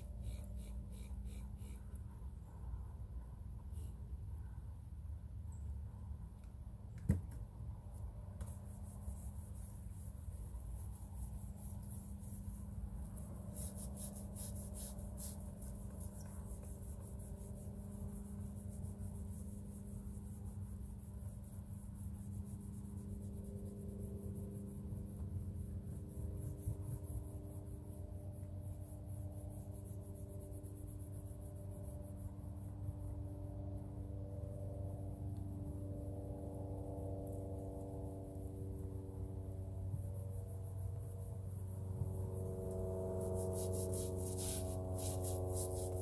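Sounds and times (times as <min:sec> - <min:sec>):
scrubbing on fabric panel: 0:07.9 - 0:32.8, 0:42.4 - 0:46.0.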